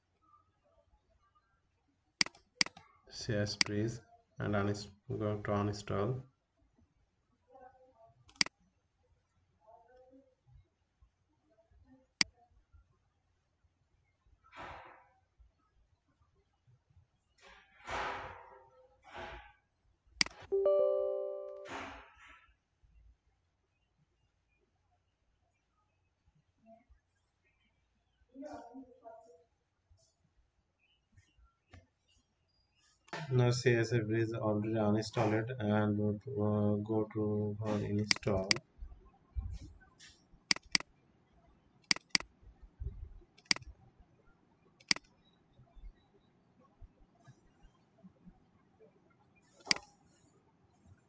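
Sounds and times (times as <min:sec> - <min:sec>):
computer mouse button clicks: 0:38.0 - 0:38.6, 0:40.5 - 0:40.9, 0:41.9 - 0:42.2.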